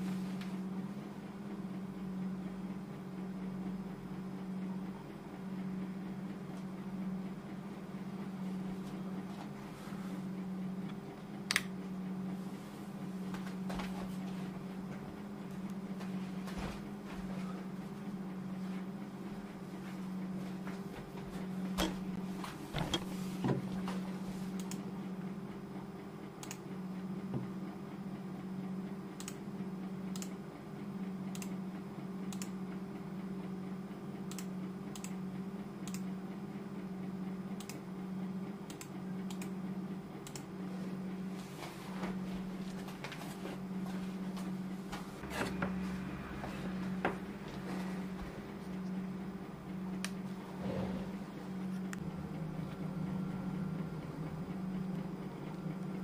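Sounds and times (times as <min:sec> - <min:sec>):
low pulsing hum: 0:00.0 - 0:56.0
computer mouse clicks: 0:11.5 - 0:11.7, 0:24.6 - 0:24.8, 0:26.4 - 0:26.6, 0:29.2 - 0:29.4, 0:30.1 - 0:30.4, 0:31.3 - 0:31.5, 0:32.3 - 0:32.5, 0:34.3 - 0:35.2, 0:35.8 - 0:36.1, 0:37.6 - 0:37.8, 0:38.7 - 0:39.5, 0:40.2 - 0:40.5.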